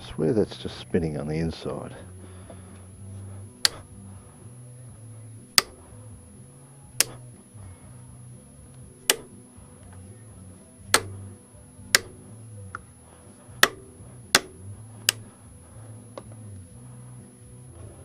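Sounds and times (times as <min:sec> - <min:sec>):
ratchet clicking: 0:03.6 - 0:03.9, 0:05.5 - 0:05.9, 0:07.0 - 0:07.4, 0:09.0 - 0:09.4, 0:10.9 - 0:12.9, 0:13.6 - 0:15.4.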